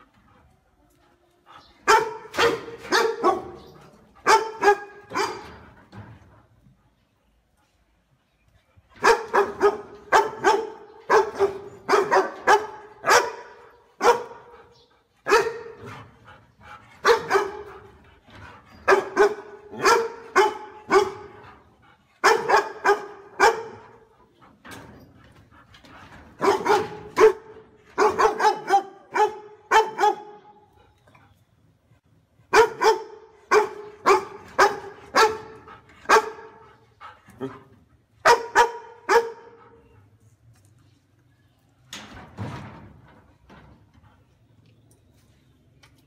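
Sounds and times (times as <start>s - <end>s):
dog barking: 1.9s - 3.6s, 4.2s - 5.5s, 9.0s - 14.5s, 15.3s - 15.8s, 17.0s - 17.7s, 18.9s - 21.3s, 22.2s - 23.9s, 26.4s - 30.5s, 32.5s - 36.6s, 38.2s - 39.6s.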